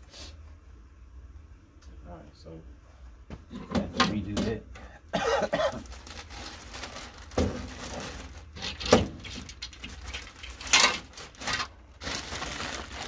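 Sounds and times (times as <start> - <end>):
plastic bag rustling: 5.7 - 13.0.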